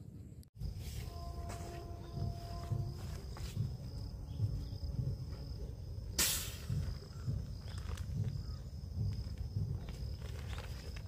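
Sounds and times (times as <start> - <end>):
insects chirring: 0.6 - 11.0
low uneven rumble: 0.6 - 11.0
short loud hiss: 6.2 - 6.8.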